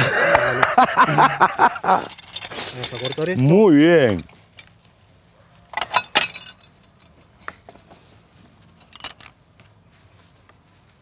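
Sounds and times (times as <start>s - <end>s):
knocks and clinks of blade and dishes: 1.8s - 3.5s, 5.7s - 7.7s, 8.7s - 9.4s.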